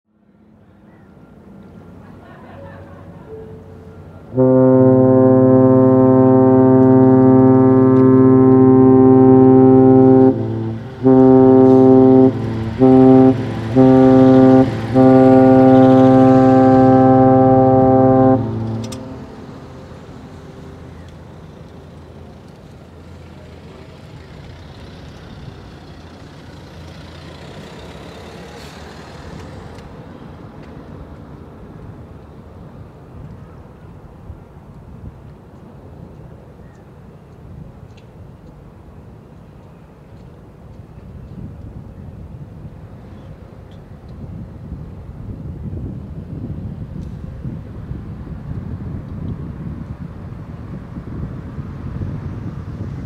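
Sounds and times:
faint outdoor background noise: 0.1 - 53.0
ship horn blasts: 3.3 - 22.4.

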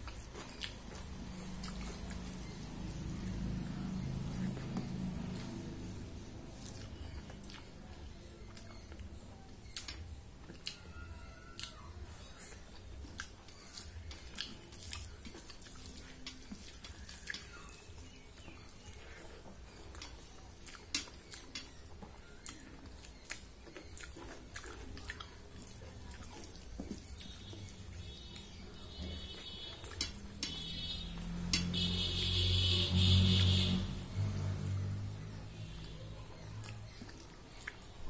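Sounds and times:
fingers mixing food on metal plate: 0.0 - 32.2
chewing mouth smacks: 35.8 - 37.9.

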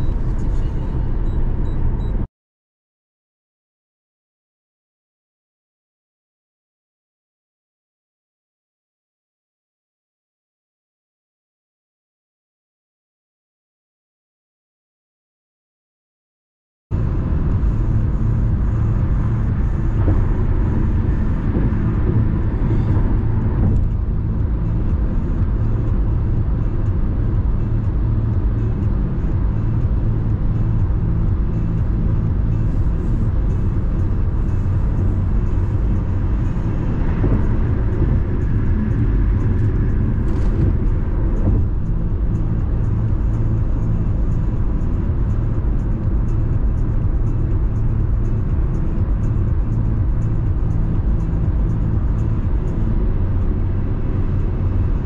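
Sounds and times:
car tyres and engine rumble: 0.0 - 2.3, 16.9 - 55.0.

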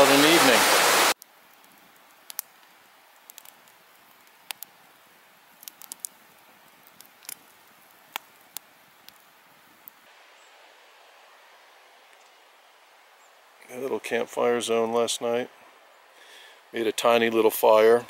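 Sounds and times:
campfire crackling: 0.0 - 18.0.

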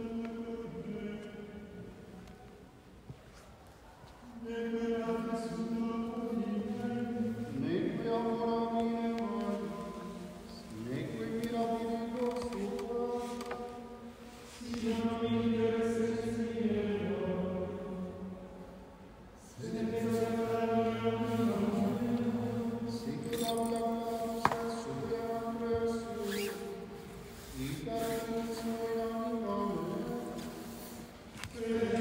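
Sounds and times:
voices singing long held notes: 14.6 - 18.2, 19.5 - 23.2, 27.6 - 32.0.

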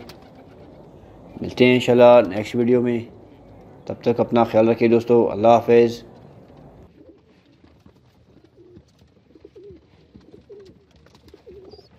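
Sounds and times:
pigeons cooing softly: 0.0 - 1.9, 6.6 - 11.9.

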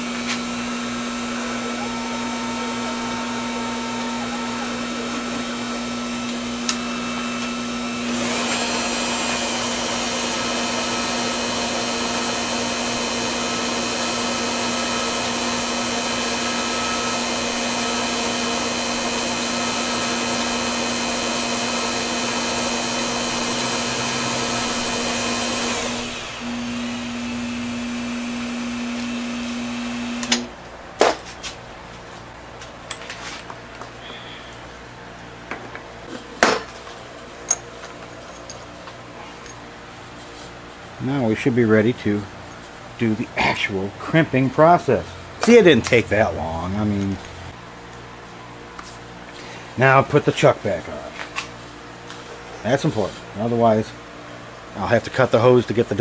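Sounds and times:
lathe motor hum: 0.0 - 30.5
cutting tool cutting metal: 1.4 - 26.4.

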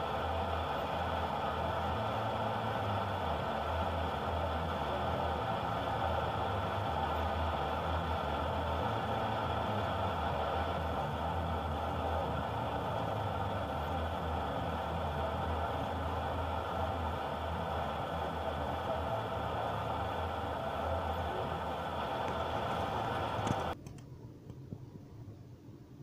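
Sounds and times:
car engine idling: 0.0 - 23.8.

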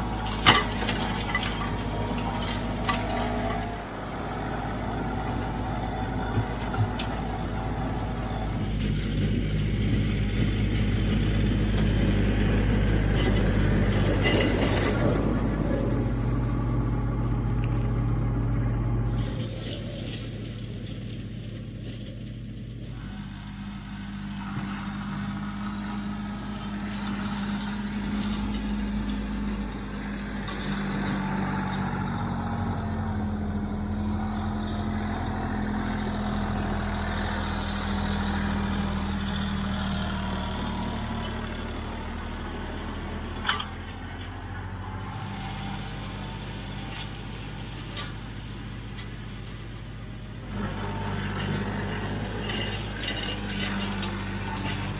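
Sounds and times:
tractor diesel engine running: 0.0 - 54.9.

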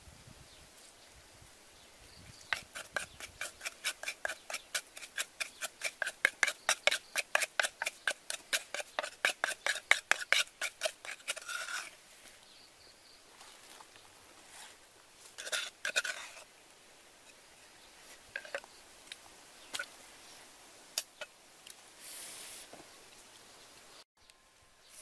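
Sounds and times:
wooden spoon scraping in mortar: 2.4 - 12.0, 13.4 - 16.5, 18.0 - 18.7
brief hiss: 22.0 - 22.9.

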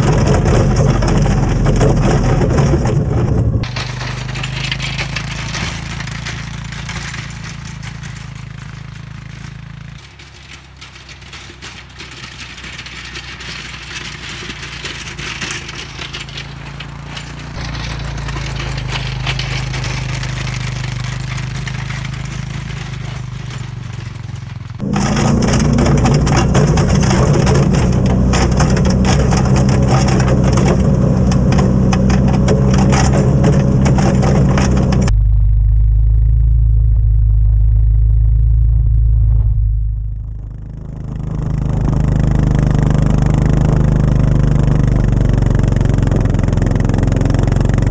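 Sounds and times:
atv engine running: 0.0 - 47.9.

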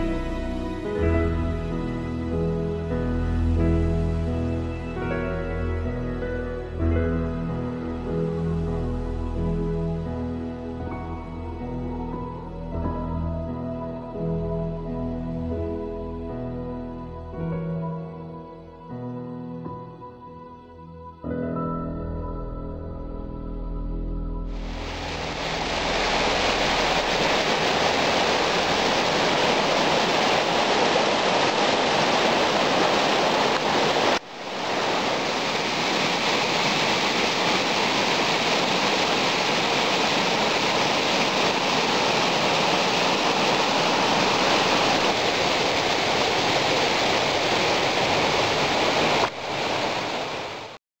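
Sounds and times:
stream rushing over boulders: 24.6 - 50.8.

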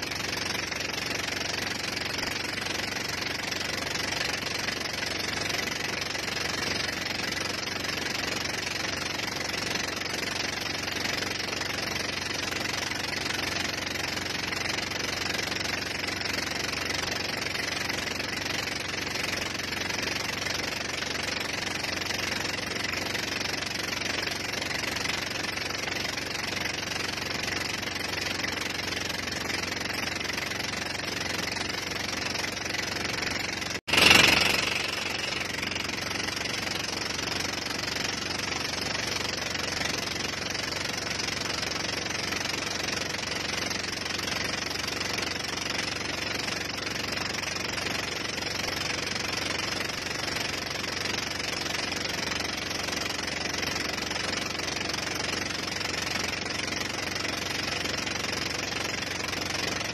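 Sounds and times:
boat engine running: 0.0 - 59.9
loud rush of noise: 33.9 - 36.0.

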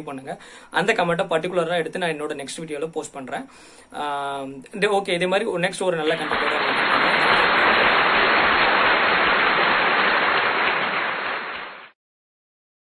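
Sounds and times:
loud rain-like hiss: 6.1 - 11.9.

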